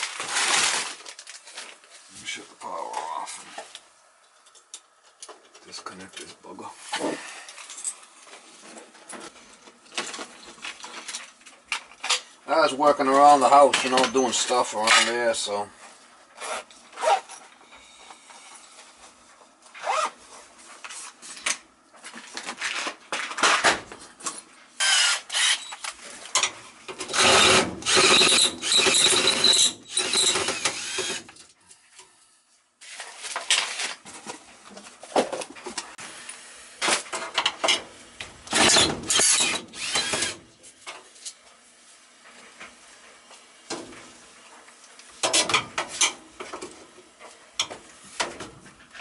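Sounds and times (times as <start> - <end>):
cordless drill driving screws: 24.8 - 25.8, 27.1 - 31.2, 38.5 - 40.4.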